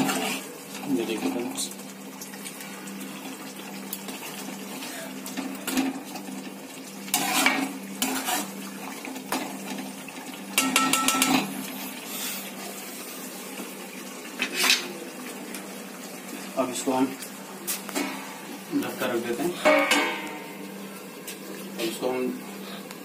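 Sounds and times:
metal ladle scraping pan: 0.0s - 0.5s, 7.1s - 8.6s, 14.4s - 14.9s.

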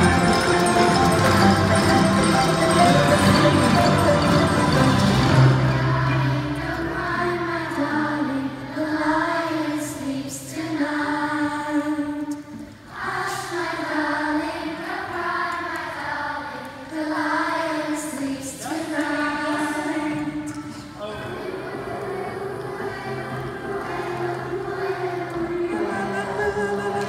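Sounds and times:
children singing together: 5.3s - 27.0s.

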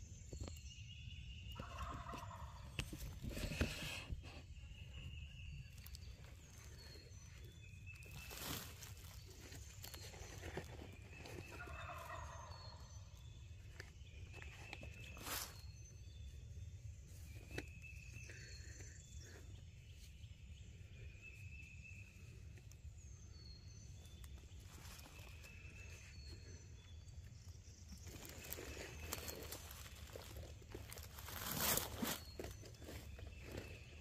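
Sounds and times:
songbirds chirping: 0.0s - 34.0s
rustling in leaf litter: 5.7s - 12.2s, 15.0s - 15.8s, 24.4s - 26.4s, 28.0s - 33.8s.

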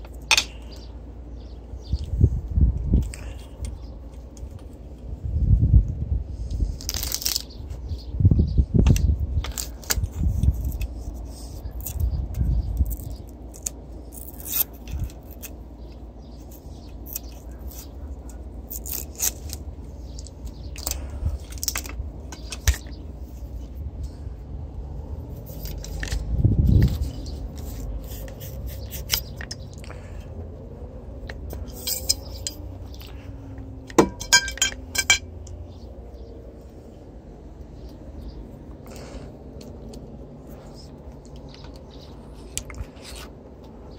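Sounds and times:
tools clicking and scraping: 25.4s - 29.9s, 31.2s - 33.2s, 33.8s - 35.6s.

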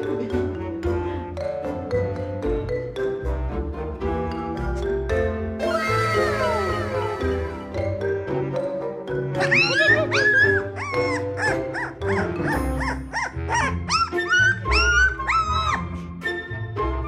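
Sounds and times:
background music: 0.0s - 17.0s
puppy crying: 9.4s - 15.9s.

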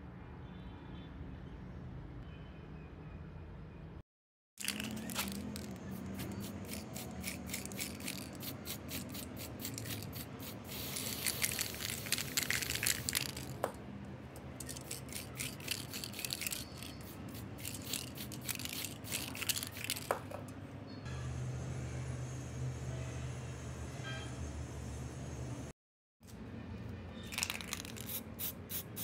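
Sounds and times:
spray paint can spraying: 4.6s - 13.8s, 14.6s - 20.3s, 27.3s - 29.0s.

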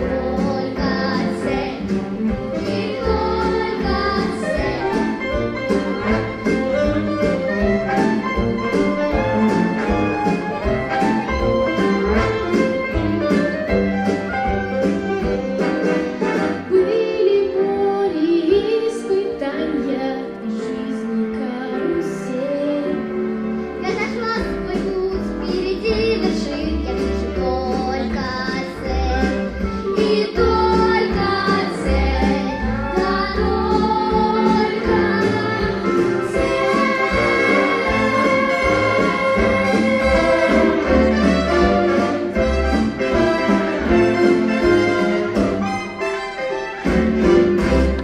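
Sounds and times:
children and woman singing: 0.0s - 5.2s, 23.8s - 40.7s
instrumental accompaniment: 0.0s - 48.0s.

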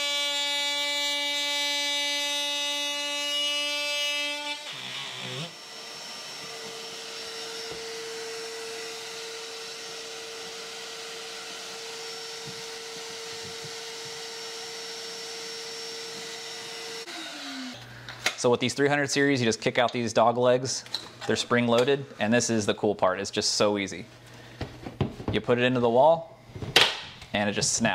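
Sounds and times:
power tool winding down: 1.8s - 17.8s.

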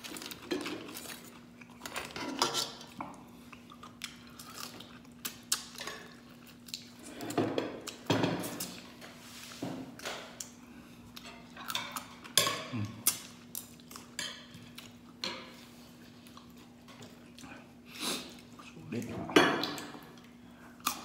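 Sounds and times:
faint steady hum: 0.0s - 21.0s
chewing and mouth noises: 2.8s - 8.9s, 10.3s - 15.2s, 15.9s - 18.8s.

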